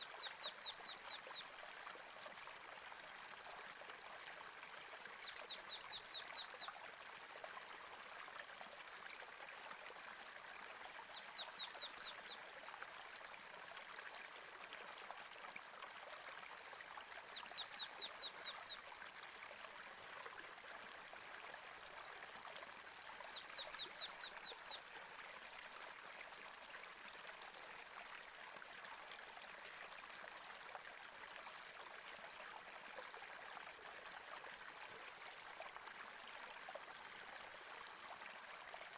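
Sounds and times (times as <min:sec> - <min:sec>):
stream running: 0:00.0 - 0:38.9.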